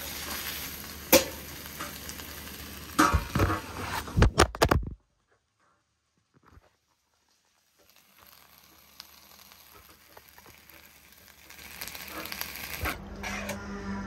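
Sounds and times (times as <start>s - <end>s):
meat and cabbage sizzling in wok: 0.0s - 4.2s, 6.9s - 13.4s.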